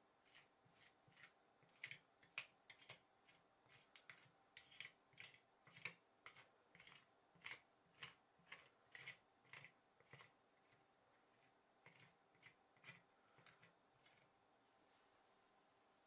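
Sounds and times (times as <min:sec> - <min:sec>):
spatula scraping metal plate: 0:02.7 - 0:14.2.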